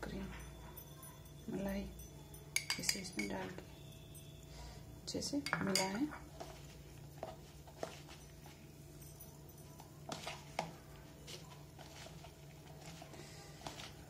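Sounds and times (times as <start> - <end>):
soft squishing and rubbing: 6.1 - 14.0.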